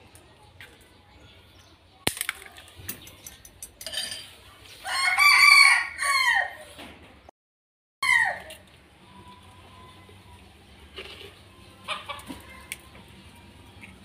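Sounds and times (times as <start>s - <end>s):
rooster crowing: 4.8s - 6.7s, 8.0s - 8.6s.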